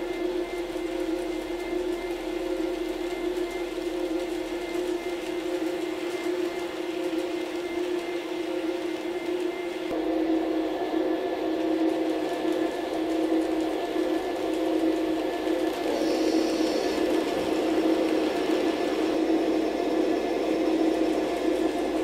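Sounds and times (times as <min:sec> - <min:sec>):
faint high whine: 0:00.0 - 0:22.0
model train whirring: 0:12.2 - 0:22.0.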